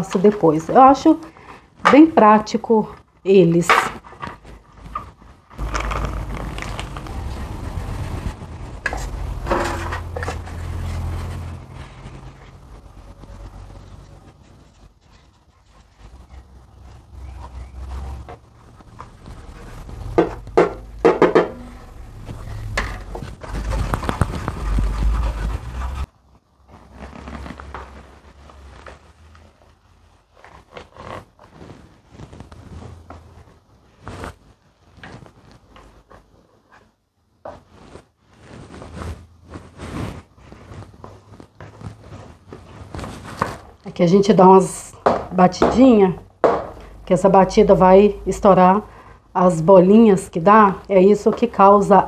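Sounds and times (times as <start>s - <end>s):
spatula scraping bowl: 3.6s - 26.1s
low hum with rushing noise: 5.4s - 15.0s, 18.6s - 26.1s
metal baking trays clattering: 9.0s - 10.6s.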